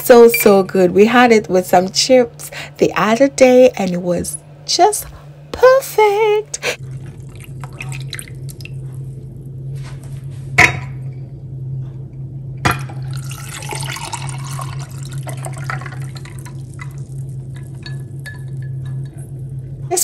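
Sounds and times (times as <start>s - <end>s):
steady low hum: 0.0s - 20.0s
juice poured into a glass: 13.0s - 17.1s.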